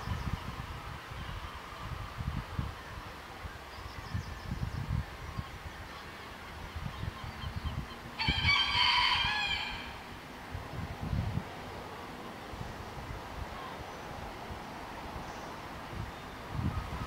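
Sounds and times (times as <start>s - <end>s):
rooster crowing: 8.2s - 10.1s.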